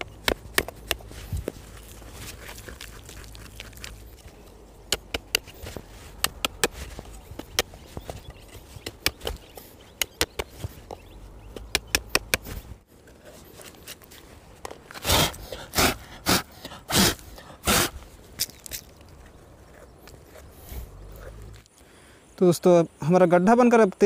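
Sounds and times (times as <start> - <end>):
stick jabbing gravelly ground: 0.0 - 21.7
hands sweeping soil: 5.2 - 10.9.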